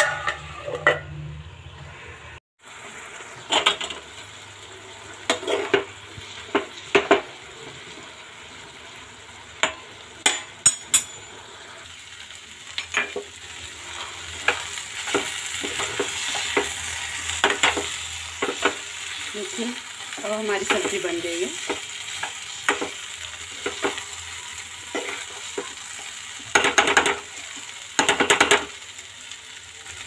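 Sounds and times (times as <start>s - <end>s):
spoon knocking and scraping pan: 0.0s - 1.2s, 5.3s - 7.3s, 12.8s - 13.4s, 14.0s - 18.9s, 20.6s - 24.1s, 24.9s - 25.8s, 26.4s - 28.8s
vegetables sizzling: 0.0s - 30.0s.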